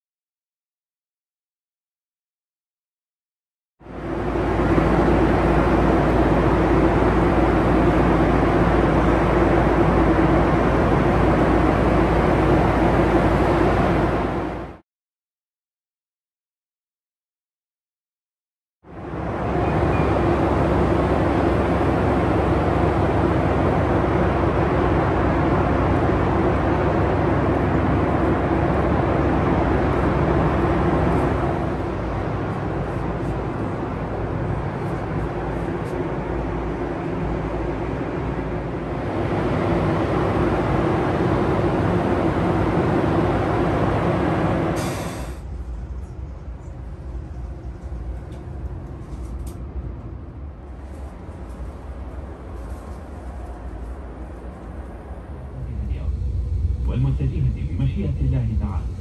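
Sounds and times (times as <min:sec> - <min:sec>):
passenger train rumbling: 0:03.8 - 0:14.8, 0:18.9 - 0:59.0
short hiss: 0:44.8 - 0:45.4.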